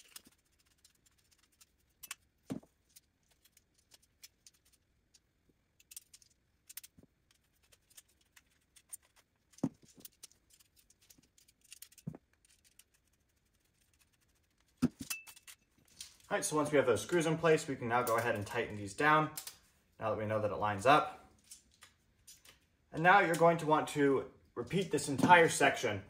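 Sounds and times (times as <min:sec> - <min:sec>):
metal parts clicking and clinking: 0:05.8 - 0:07.0, 0:15.0 - 0:16.3, 0:21.4 - 0:22.6.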